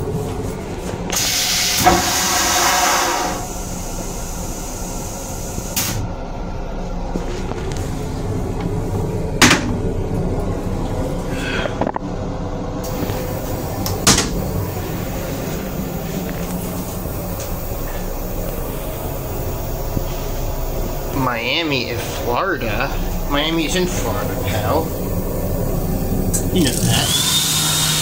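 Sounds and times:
low rumble and hum: 0.0 - 28.0.

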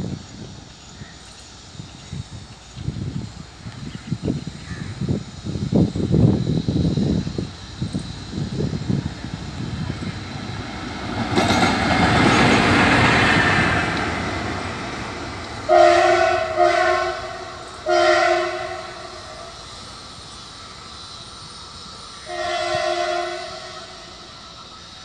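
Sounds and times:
diesel locomotive passing: 0.0 - 25.0
two-tone air horn blasts: 15.7 - 19.5, 22.2 - 24.3.

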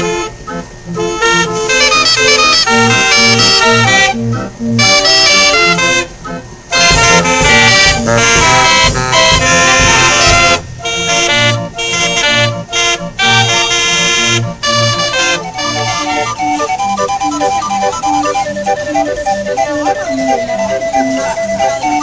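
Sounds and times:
band organ playing lively tune: 0.0 - 22.0
drum strokes: 1.7 - 6.1, 6.7 - 16.4.

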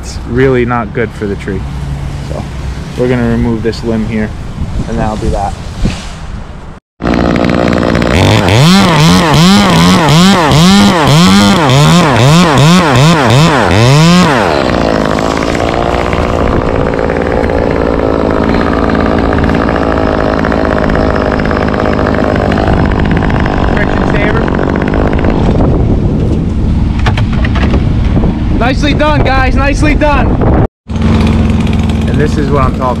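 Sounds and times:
chainsaw cutting wood: 7.0 - 25.7, 31.0 - 32.8.

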